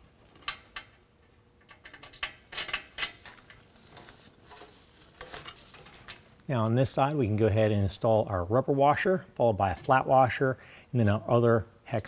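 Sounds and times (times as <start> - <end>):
metallic clicks and scrapes: 0.0 - 6.2.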